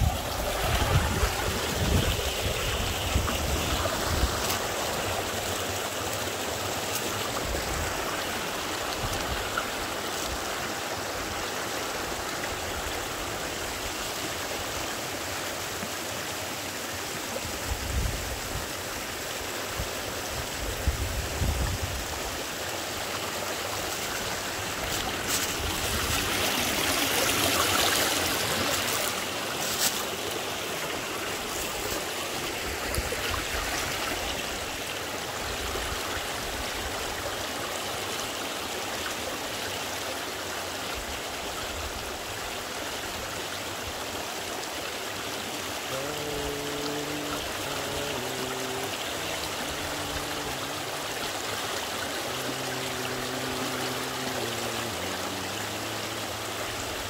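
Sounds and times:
stream running over rocks: 0.0s - 57.0s.

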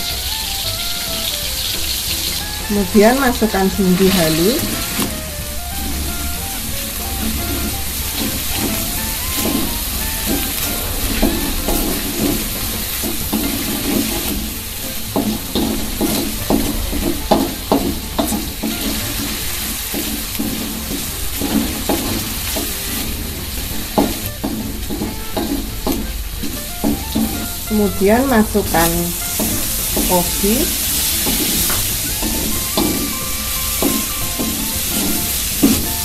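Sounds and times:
chicken sizzling in oil: 0.0s - 36.0s
plastic spatula scraping a wok: 28.6s - 36.0s.

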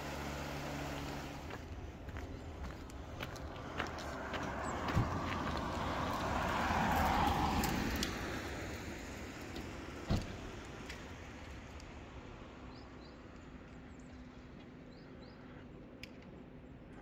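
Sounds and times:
van driving past: 0.0s - 10.6s.

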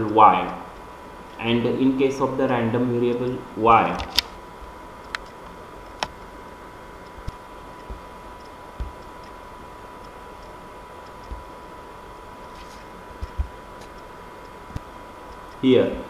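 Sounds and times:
steady hiss: 0.0s - 16.0s
thin steady whine: 0.0s - 16.0s
sharp clicks: 5.0s - 6.2s.

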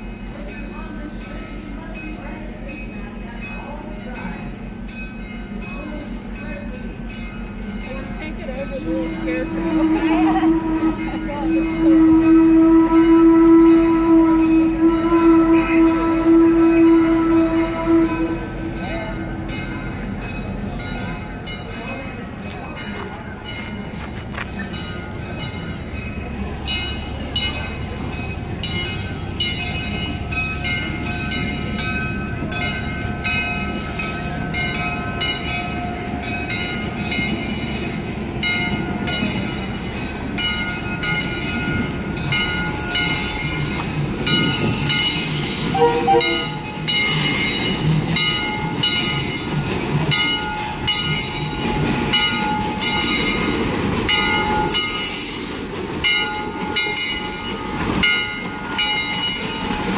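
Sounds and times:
steam locomotive chuffing: 0.0s - 59.9s
steam hiss: 33.5s - 34.9s, 42.5s - 59.9s.

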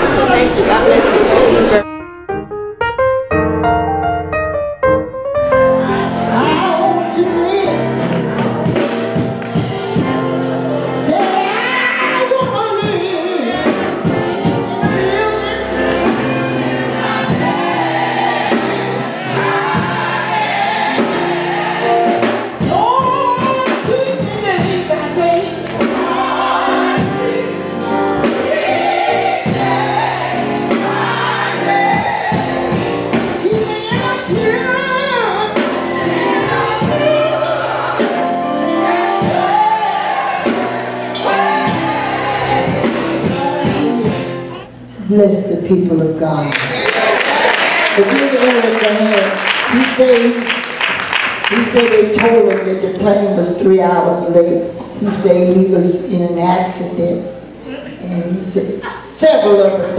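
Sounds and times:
keyboard accompaniment: 0.0s - 58.6s
group singing gospel: 5.6s - 44.7s, 46.6s - 53.1s.

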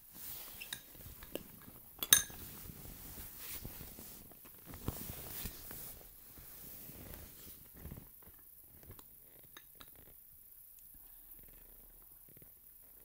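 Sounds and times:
spoon stirring slime: 0.2s - 3.5s
spoon clinking against bowl: 2.0s - 2.4s.

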